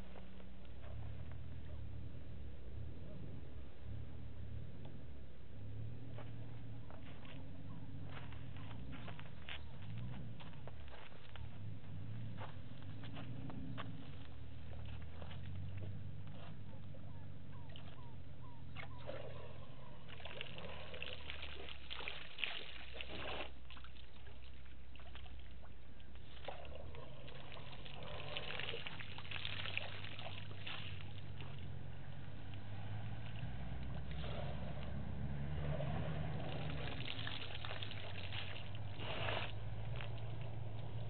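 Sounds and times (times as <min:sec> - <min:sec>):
low hum: 0:00.0 - 0:21.0
elephant splashing water: 0:18.9 - 0:41.0.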